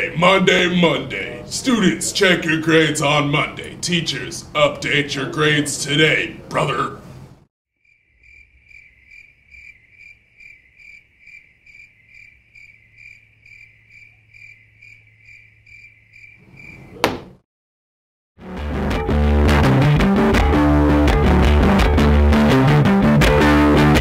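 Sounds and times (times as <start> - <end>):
cricket chirping: 7.8 - 17.0.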